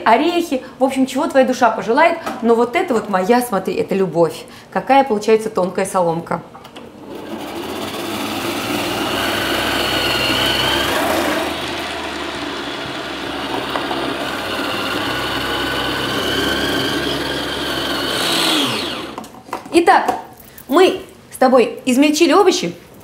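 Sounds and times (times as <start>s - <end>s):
kitchen machine motor whirring: 7.0s - 19.3s.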